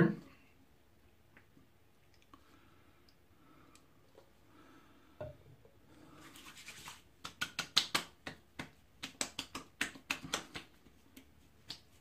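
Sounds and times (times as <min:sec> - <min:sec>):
wet palms rubbing: 0:05.9 - 0:12.0
hands patting cheeks: 0:06.6 - 0:12.0.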